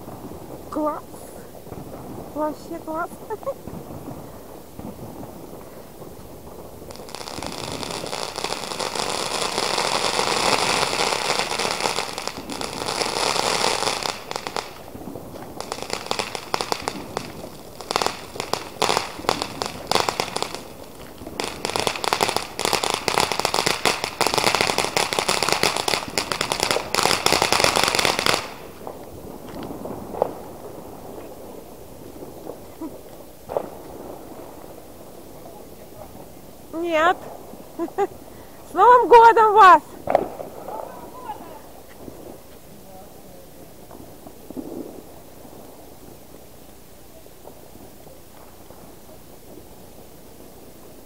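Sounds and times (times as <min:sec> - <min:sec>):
firework rapid crackling: 0:00.0 - 0:51.0
firework spraying hiss: 0:00.0 - 0:51.0
faint pops: 0:39.6 - 0:40.9.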